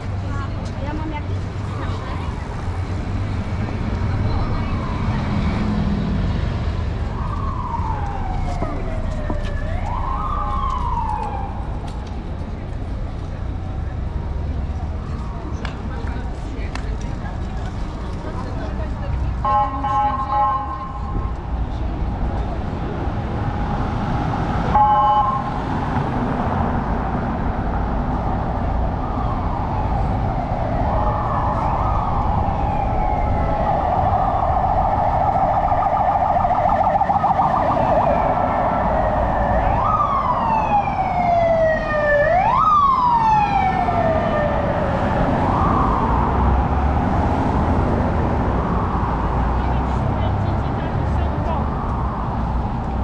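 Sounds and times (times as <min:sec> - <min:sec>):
city street noise: 0:00.0 - 0:53.0
police siren wailing: 0:04.2 - 0:05.9, 0:06.6 - 0:12.2, 0:14.8 - 0:16.1, 0:19.4 - 0:25.9, 0:27.8 - 0:53.0.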